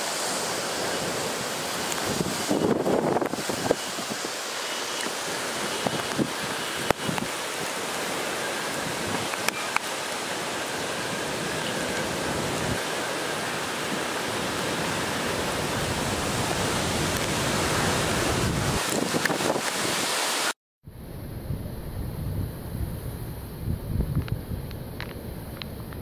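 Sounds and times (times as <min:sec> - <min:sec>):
torrential rain: 0:00.0 - 0:20.6
hurricane wind: 0:00.0 - 0:26.0.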